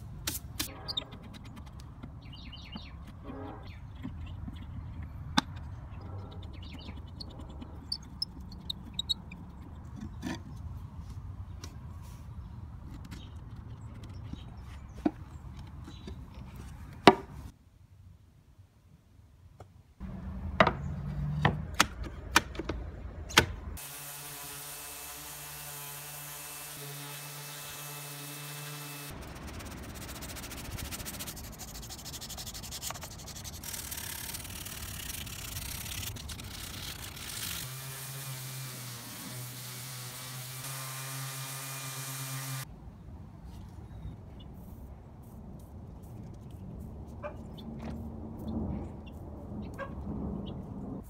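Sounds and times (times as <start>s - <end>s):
hand tool scraping wood: 25.2s - 42.6s
orbital sander running on wood: 36.9s - 42.6s.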